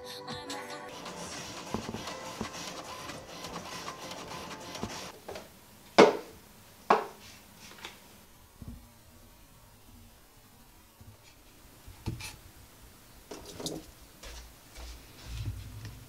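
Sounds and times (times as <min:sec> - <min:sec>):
printer whirring and clicking: 0:00.9 - 0:05.2.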